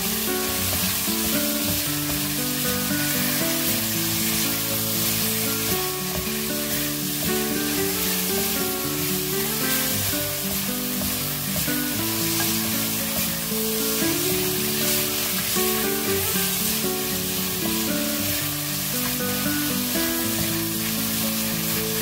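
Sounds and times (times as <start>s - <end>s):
food sizzling in frying pan: 0.0s - 22.0s
light background melody: 0.0s - 22.0s.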